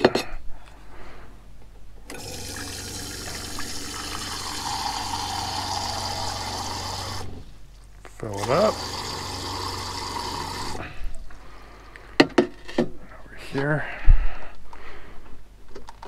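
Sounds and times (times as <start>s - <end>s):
water running from faucet into pot: 2.1s - 7.3s, 8.5s - 10.8s
water pump humming: 2.1s - 7.6s, 8.2s - 11.8s.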